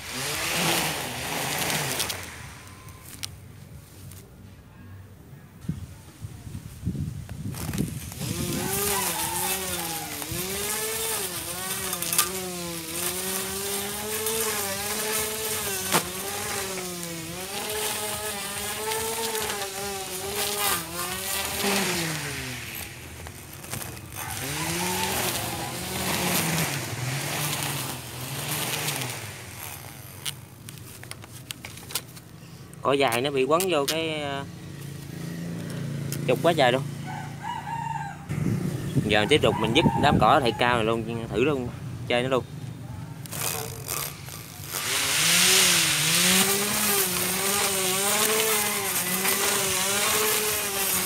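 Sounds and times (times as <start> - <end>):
mower motor whining hum: 0.0 - 3.4, 7.5 - 32.3, 43.2 - 51.0.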